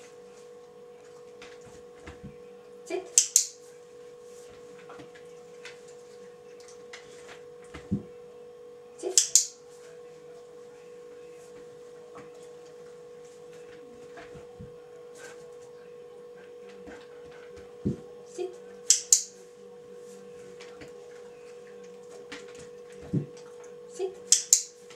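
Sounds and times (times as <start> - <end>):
electrical hum: 0.0 - 24.9
sharp double click: 3.2 - 3.5, 18.9 - 19.3, 24.3 - 24.7.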